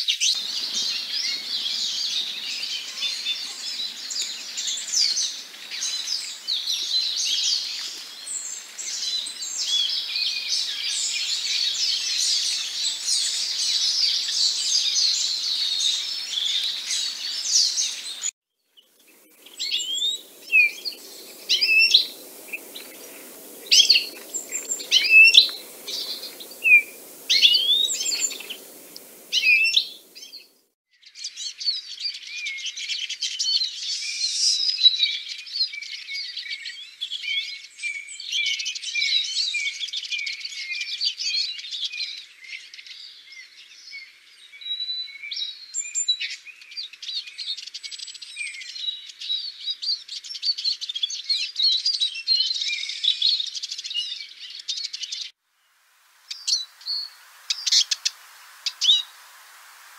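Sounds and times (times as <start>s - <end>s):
bird twittering and chirping: 0.0s - 30.6s, 56.3s - 59.2s.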